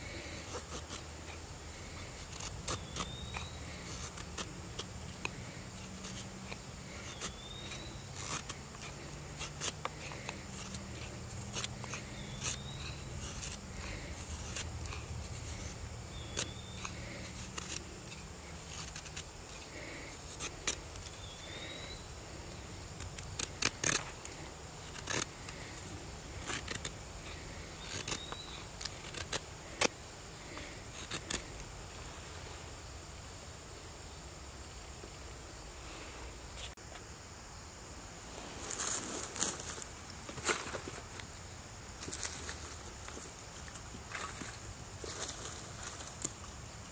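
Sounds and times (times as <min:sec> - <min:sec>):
high insect trill: 0:00.0 - 0:46.9
knife scraping wooden stick: 0:00.2 - 0:22.0, 0:22.9 - 0:29.9, 0:30.5 - 0:31.7.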